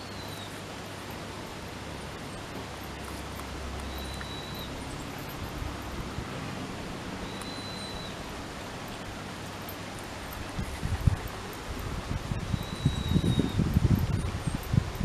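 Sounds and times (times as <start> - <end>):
outdoor background noise: 0.0 - 15.0
thin high whistle: 3.9 - 4.8, 7.2 - 8.2, 12.4 - 13.6.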